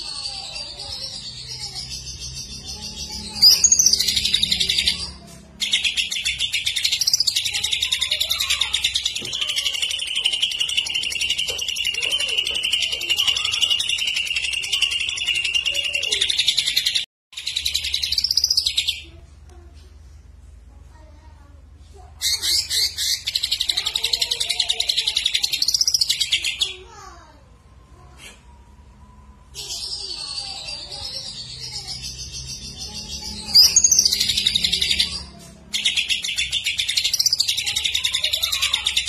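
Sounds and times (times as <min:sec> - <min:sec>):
bird singing a rapid trill: 0:00.0 - 0:19.1, 0:29.6 - 0:39.0.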